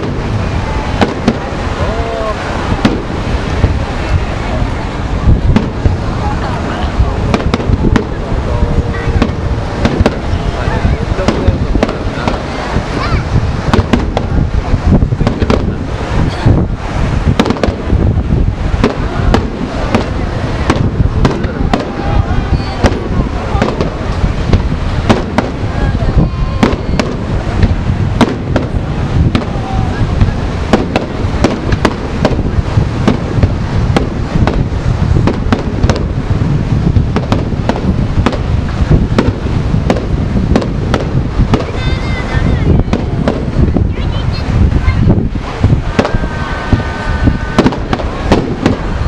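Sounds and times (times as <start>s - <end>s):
fireworks bangs: 0.0s - 49.0s
low rumble of booms: 0.0s - 49.0s.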